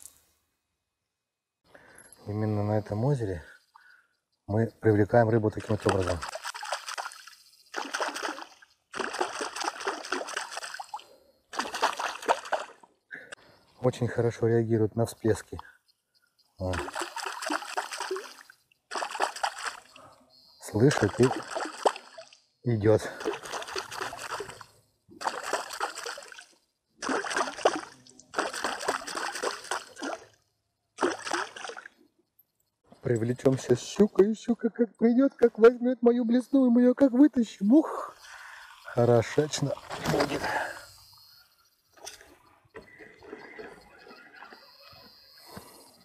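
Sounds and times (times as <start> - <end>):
water splashing and sloshing: 5.3 - 13.4, 16.6 - 20.1, 20.8 - 30.4, 31.0 - 32.1, 38.2 - 40.9.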